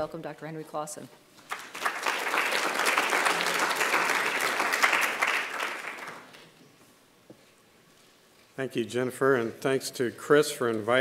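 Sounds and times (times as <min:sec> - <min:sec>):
audience applauding: 0:01.4 - 0:06.4.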